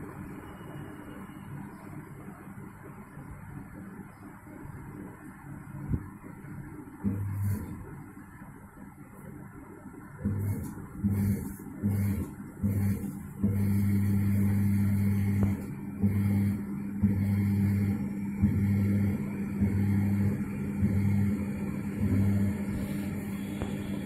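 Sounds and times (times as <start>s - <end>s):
washing machine motor humming: 5.0s - 8.4s, 9.9s - 24.0s.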